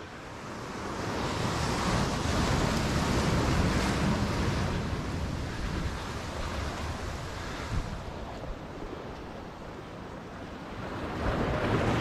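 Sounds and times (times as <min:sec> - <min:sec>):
surf breaking against rocks: 0:10.7 - 0:12.0.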